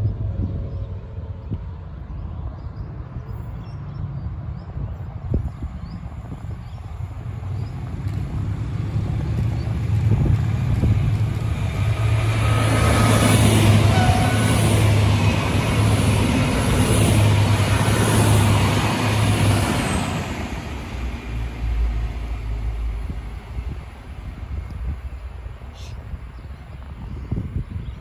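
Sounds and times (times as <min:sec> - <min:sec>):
train wheels on rails: 0:06.3 - 0:25.9.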